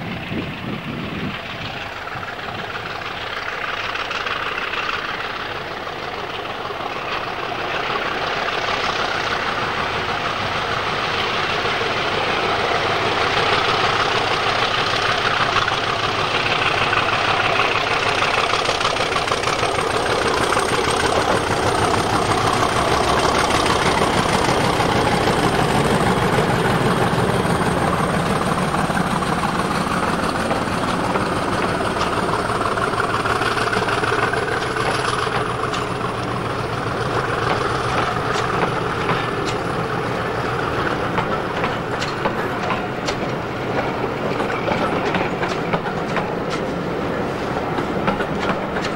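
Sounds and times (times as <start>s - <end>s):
diesel locomotive engine: 0.0s - 48.9s
train coaches rolling by: 0.0s - 48.9s
wheels clicking over rails: 0.0s - 48.9s.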